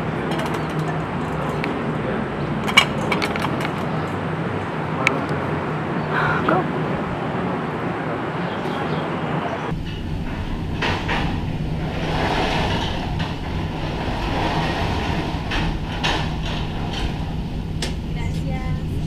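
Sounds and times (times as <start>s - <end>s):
cabins clacking: 0.0s - 1.8s, 2.6s - 4.2s, 9.7s - 18.1s
cable drive hum and rumble: 9.7s - 19.0s.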